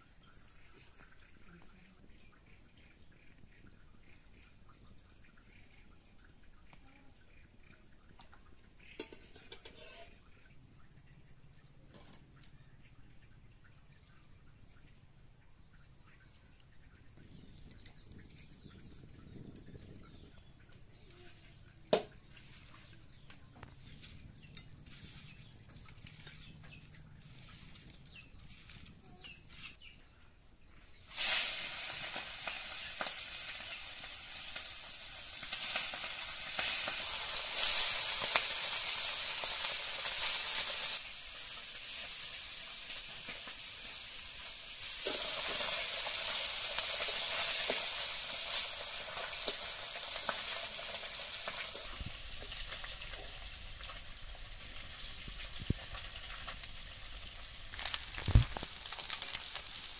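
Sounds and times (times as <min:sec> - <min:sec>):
fish sizzling in hot oil: 0:08.2 - 0:10.2, 0:17.2 - 0:29.6, 0:30.9 - 0:59.9.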